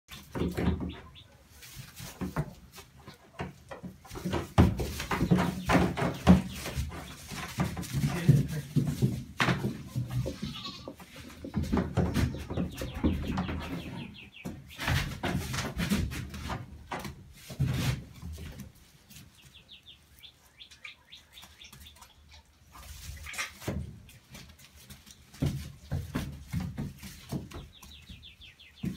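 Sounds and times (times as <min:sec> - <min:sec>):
birds chirping: 0:00.1 - 0:01.6, 0:04.0 - 0:15.6, 0:19.1 - 0:23.6, 0:27.2 - 0:28.9
goat hooves tapping on plastic: 0:00.1 - 0:19.8, 0:23.0 - 0:28.9.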